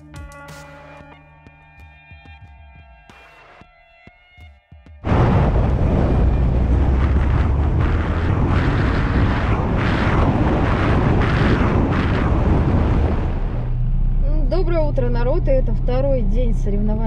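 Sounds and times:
road and wind noise rumble: 5.0 - 17.0.

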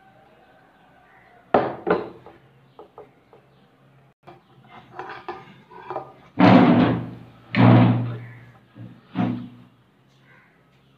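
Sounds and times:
plate bumping and scraping on table: 4.3 - 8.2.

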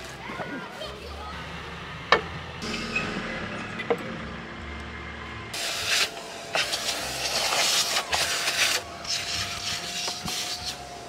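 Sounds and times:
vacuum cleaner running: 2.6 - 11.0.

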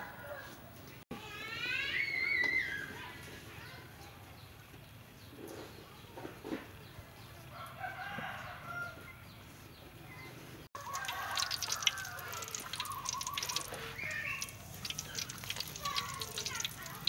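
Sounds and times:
chickens clucking: 10.1 - 17.0
hot oil sizzling and crackling: 10.8 - 17.0.

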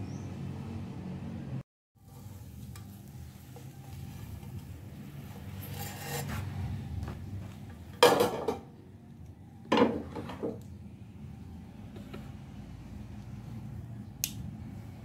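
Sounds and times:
utensil scraping on a plate: 5.3 - 6.8.

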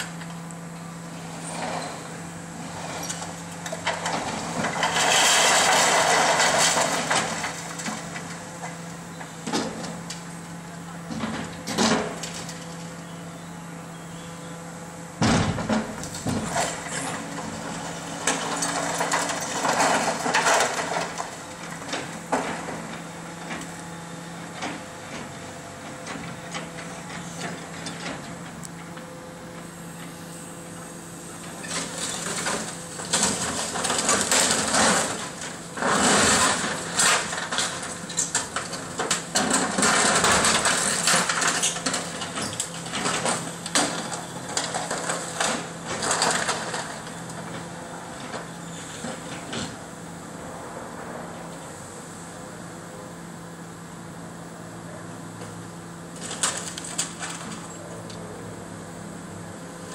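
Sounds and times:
excavator engine humming: 0.0 - 59.9
masonry crunching and clattering: 3.1 - 13.0, 15.3 - 23.6, 31.5 - 49.7.

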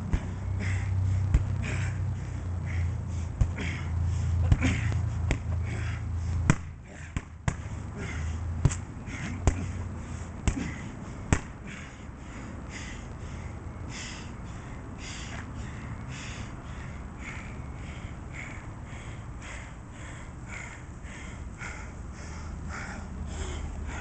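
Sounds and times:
punches thudding into heavy bag: 6.5 - 7.6, 11.3 - 11.6.

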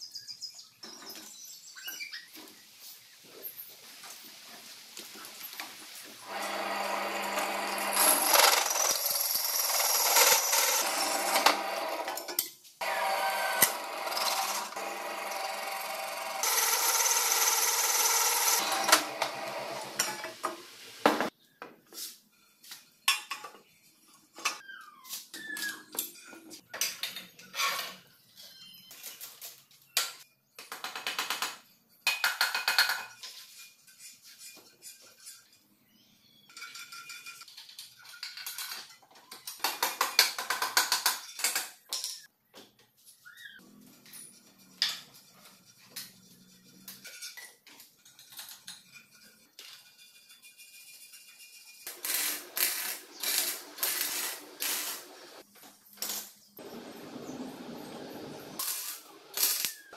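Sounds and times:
hole saw cutting steel: 6.2 - 20.2, 51.8 - 55.4
drill press motor hum: 6.3 - 12.2, 12.8 - 20.0.

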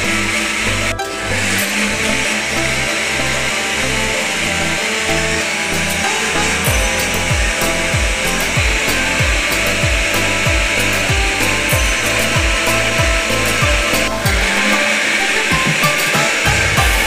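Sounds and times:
blender motor whirring: 0.0 - 17.0
background music with thumping beat: 6.0 - 17.0.

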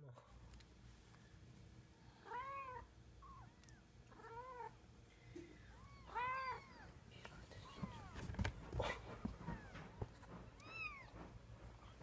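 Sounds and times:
cat meowing: 2.2 - 4.8, 5.7 - 7.0.

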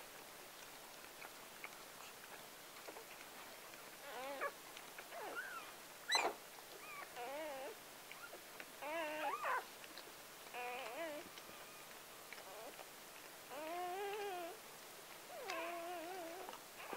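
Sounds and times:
puppies whimpering and squealing: 4.0 - 9.7, 10.4 - 12.9, 13.5 - 14.6, 15.3 - 16.9.

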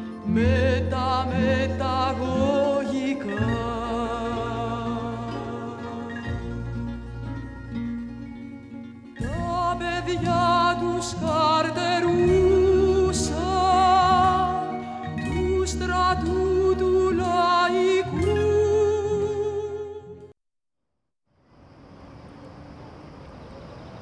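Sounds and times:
person singing with vibrato: 0.0 - 7.2, 9.2 - 20.3
instrumental accompaniment with bass: 0.0 - 20.3.

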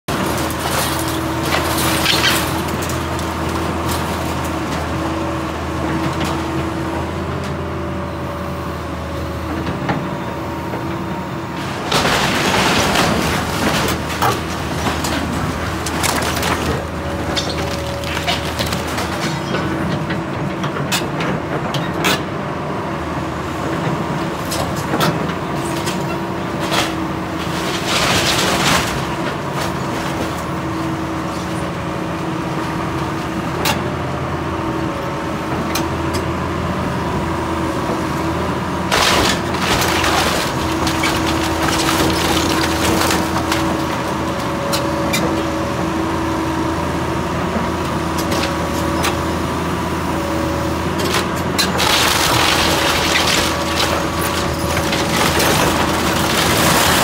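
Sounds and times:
excavator diesel engine running: 0.1 - 57.0
wood cracking and splintering: 11.8 - 19.5, 38.9 - 44.4, 51.2 - 57.0.

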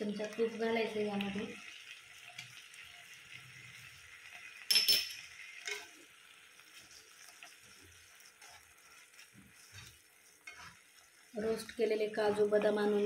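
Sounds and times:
milk simmering with faint sizzle: 0.0 - 13.0
spatula stirring and scraping: 1.9 - 12.9
steel spoon clinking on pan: 4.7 - 6.0.

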